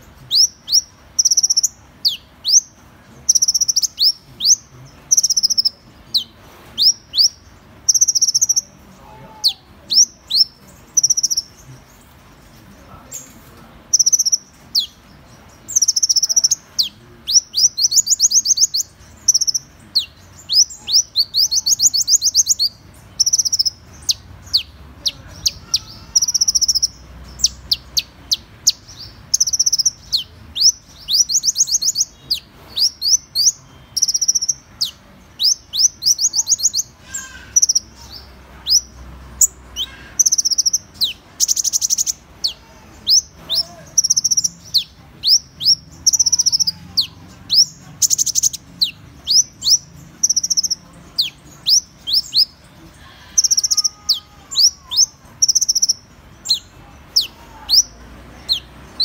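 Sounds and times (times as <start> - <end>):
harsh rattling bird call: 15.7 - 59.0.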